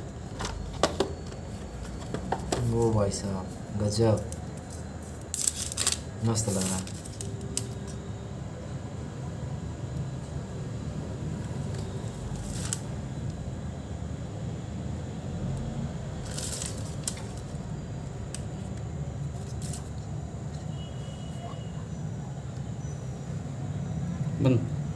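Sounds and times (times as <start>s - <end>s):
plastic wrapping crinkling: 3.5s - 8.0s, 11.8s - 12.9s, 16.2s - 17.6s, 19.3s - 20.0s.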